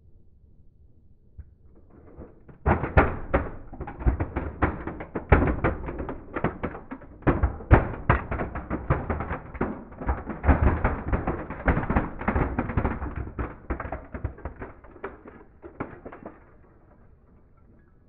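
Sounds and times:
plastic toys cracking under tyre: 0:02.1 - 0:17.4.

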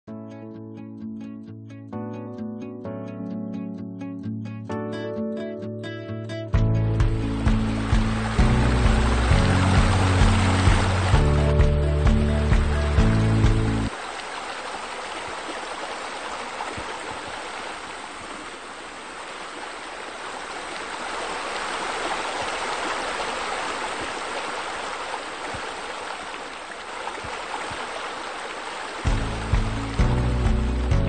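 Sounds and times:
running water: 0:06.9 - 0:31.0.

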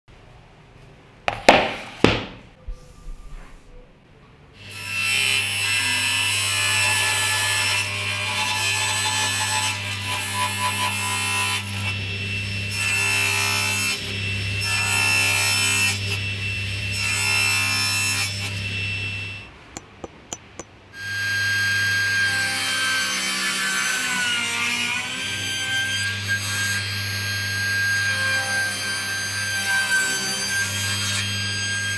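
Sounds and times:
sharp knocks: 0:01.3 - 0:02.5, 0:19.8 - 0:20.7.

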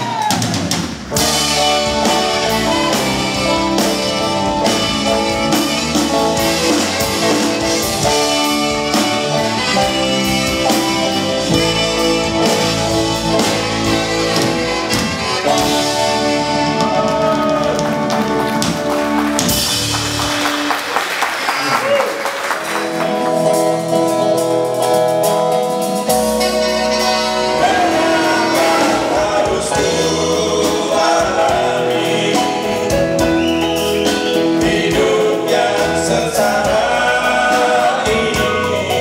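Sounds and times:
drum kit beat: 0:00.0 - 0:21.2, 0:22.6 - 0:39.0
bass: 0:00.0 - 0:39.0
electric guitar: 0:01.1 - 0:20.8, 0:22.6 - 0:36.9
saxophones: 0:01.2 - 0:19.2, 0:26.0 - 0:39.0.

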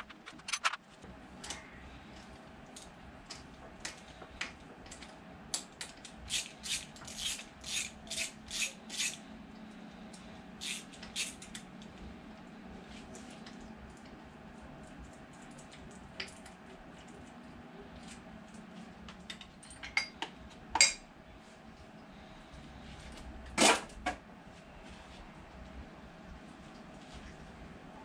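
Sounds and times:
hand ratchet clicking: 0:06.3 - 0:09.2, 0:10.6 - 0:11.6.

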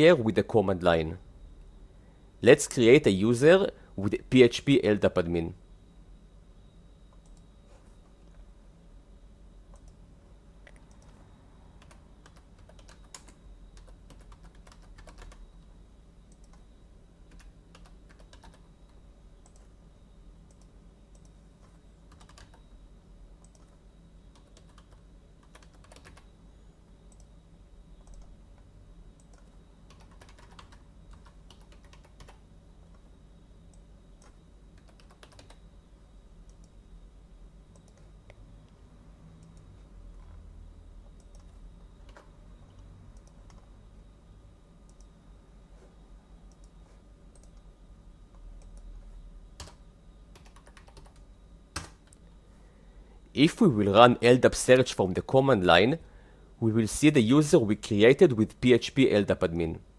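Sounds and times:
faint low hum: 0:00.0 - 0:59.9
computer keyboard typing: 0:11.8 - 0:15.4, 0:16.3 - 0:16.7, 0:17.3 - 0:18.7, 0:20.5 - 0:22.7, 0:23.4 - 0:26.3, 0:29.2 - 0:33.1, 0:33.7 - 0:35.6, 0:41.2 - 0:43.7, 0:49.6 - 0:52.2.

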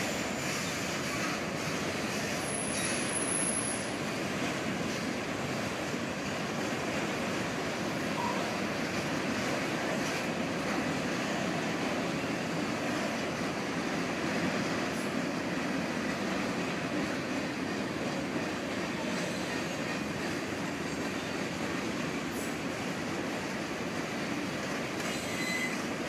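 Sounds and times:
train wheels rumbling on rail: 0:00.0 - 0:26.0
faint wheel squeal: 0:02.2 - 0:03.9, 0:25.0 - 0:25.9.

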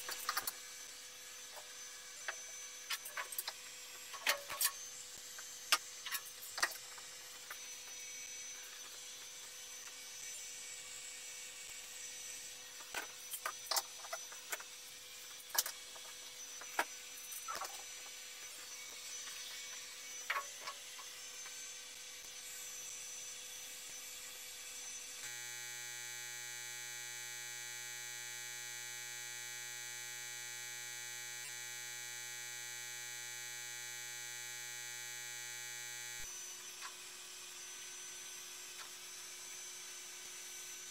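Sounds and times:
electrical hum: 0:25.2 - 0:36.3
steady hum: 0:25.2 - 0:36.3.

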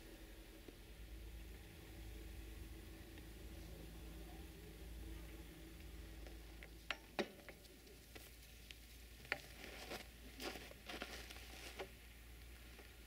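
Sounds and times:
footsteps crunching in snow: 0:09.4 - 0:12.0.

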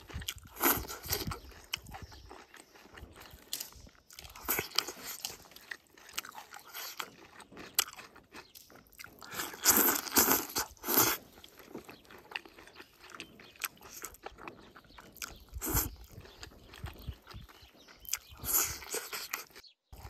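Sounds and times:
person chewing food: 0:00.0 - 0:20.0
wet mouth clicks: 0:08.5 - 0:19.6.

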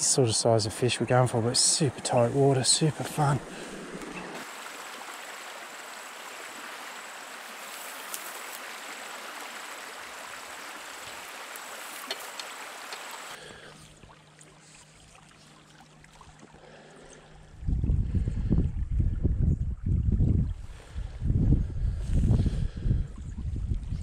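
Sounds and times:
creek water rushing over stones: 0:00.0 - 0:13.5.

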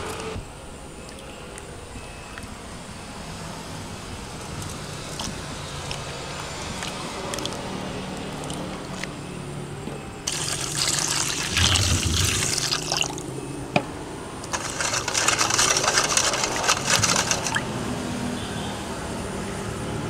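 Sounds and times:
liquid pouring into a pot: 0:10.3 - 0:13.2, 0:14.5 - 0:17.7.

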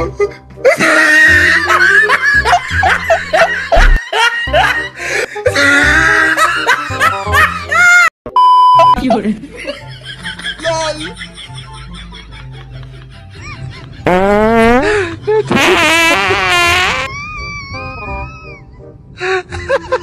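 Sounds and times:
comedy background music: 0:00.0 - 0:08.1, 0:08.8 - 0:20.0
laughter sound effects: 0:00.7 - 0:08.1, 0:19.3 - 0:20.0
steady test-tone beep: 0:08.4 - 0:09.0.

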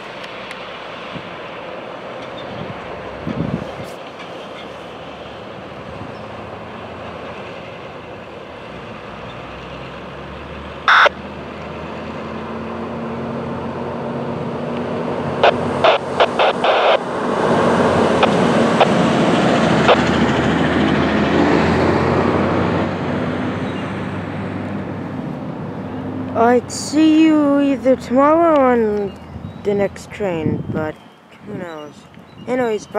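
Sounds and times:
freight train rumbling: 0:00.0 - 0:10.8, 0:17.0 - 0:32.9.

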